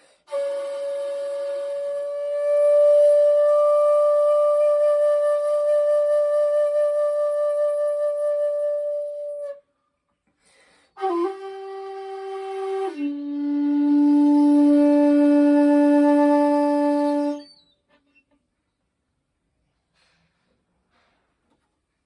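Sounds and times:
bamboo flute notes: 0.0s - 9.7s, 10.9s - 17.8s.

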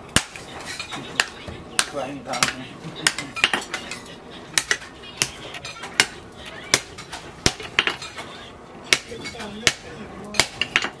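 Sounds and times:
hammer striking hot steel on anvil: 0.1s - 0.5s, 1.2s - 3.8s, 4.6s - 8.1s, 8.9s - 11.0s.

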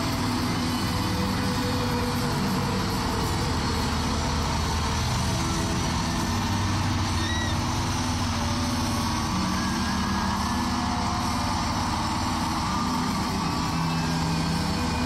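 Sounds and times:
stadium crowd cheering: 3.6s - 15.0s
high whistle: 7.1s - 7.7s, 9.0s - 15.0s.

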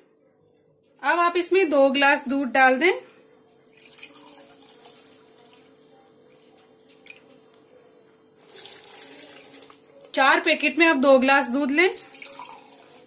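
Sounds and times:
milk pouring into a glass: 3.5s - 7.4s, 8.4s - 10.1s, 11.9s - 13.0s.

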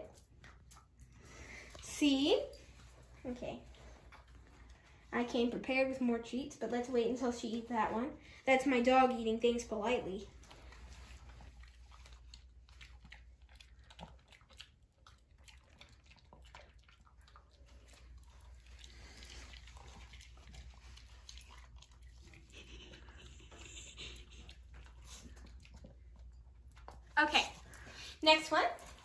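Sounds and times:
dog chewing a treat: 0.0s - 1.8s, 2.5s - 5.6s, 10.3s - 29.0s.

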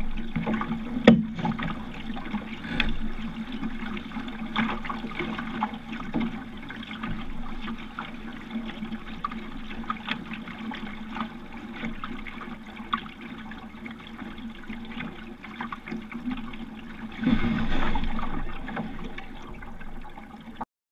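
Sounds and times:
water lapping against boat hull: 0.0s - 20.6s.

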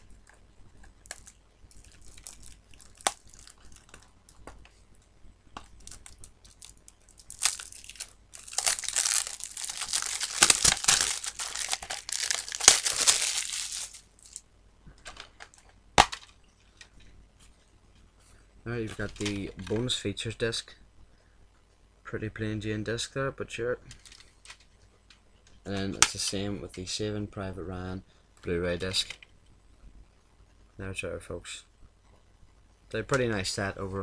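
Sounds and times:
plastic wrapping tearing and crinkling: 0.8s - 4.4s, 5.6s - 14.4s.

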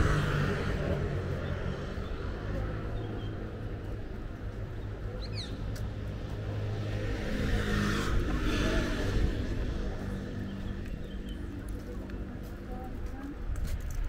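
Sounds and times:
vehicle passing: 0.0s - 13.0s
traffic engine hum: 0.0s - 14.0s.

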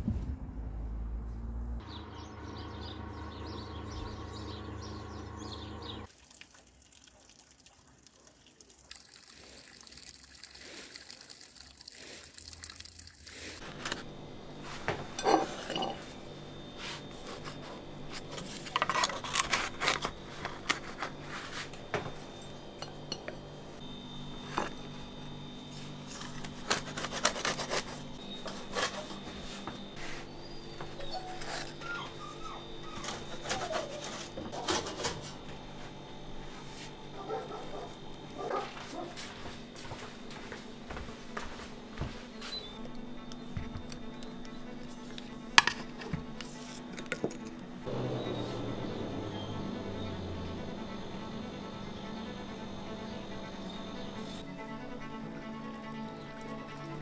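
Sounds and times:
outdoor drone: 0.0s - 6.1s, 13.6s - 57.0s
steady hum: 13.6s - 57.0s
baking tray and plate clinking: 14.8s - 16.2s.

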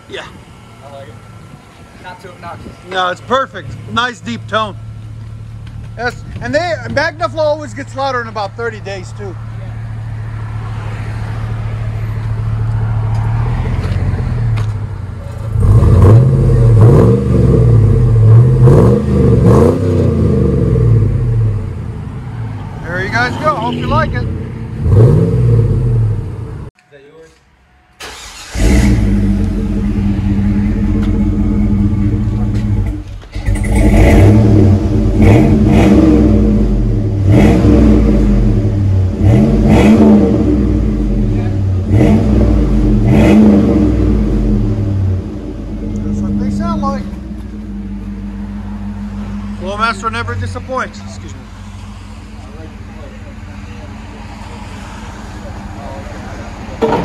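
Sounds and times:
car engine idling: 0.0s - 26.7s, 27.6s - 57.0s
engine revving sharply: 28.0s - 53.0s.

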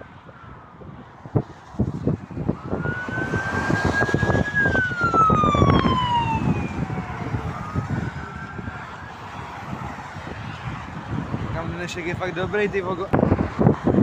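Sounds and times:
motorway traffic rumble: 0.0s - 14.0s
ambulance siren wailing: 2.3s - 11.2s.

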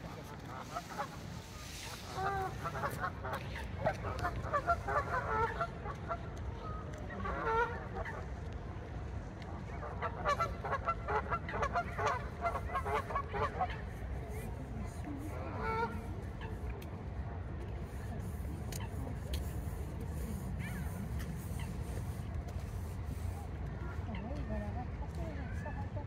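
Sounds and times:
geese honking: 0.3s - 6.2s.

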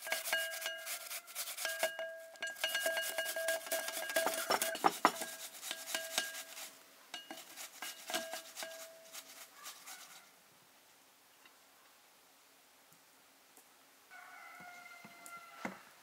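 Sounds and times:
fruit rasping on metal grater: 0.0s - 10.1s.

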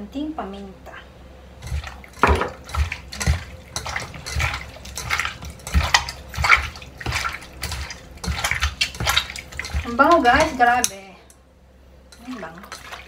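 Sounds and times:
wet squelching of meat: 1.6s - 10.8s, 12.2s - 13.0s.

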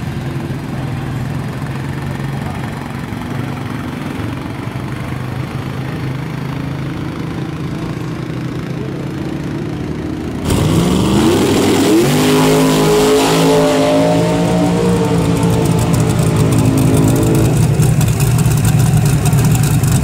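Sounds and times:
truck engine idling and revving: 0.0s - 20.0s
loud rushing noise: 10.4s - 18.3s.

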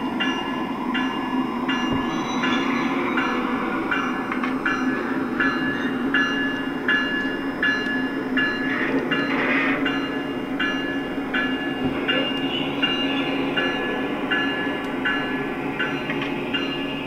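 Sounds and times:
locomotive bell ringing: 0.0s - 17.0s.

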